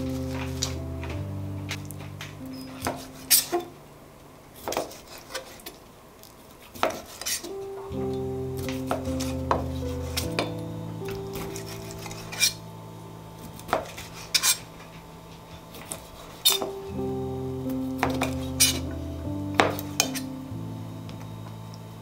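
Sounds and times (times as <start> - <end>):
background music low notes: 0.0 - 4.6, 7.4 - 22.0.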